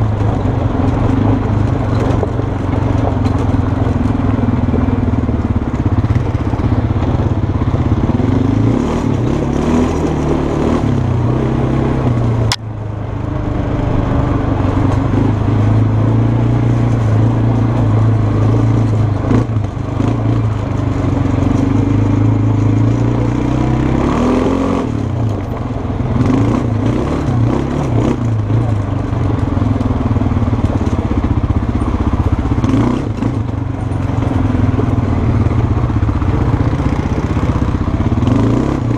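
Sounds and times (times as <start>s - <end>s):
quad engine running: 0.0s - 38.9s
sharp click: 12.5s - 12.7s.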